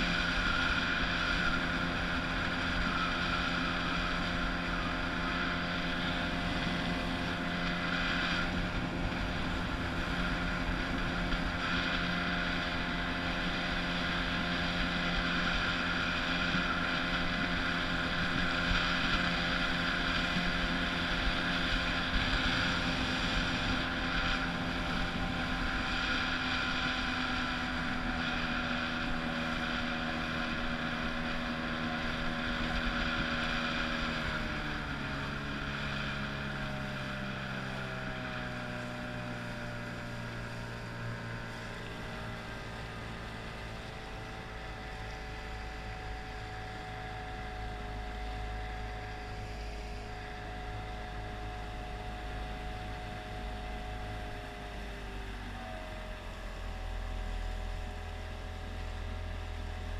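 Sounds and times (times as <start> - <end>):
outboard motor running: 0.0 - 59.9
water and wind hiss: 0.0 - 59.9.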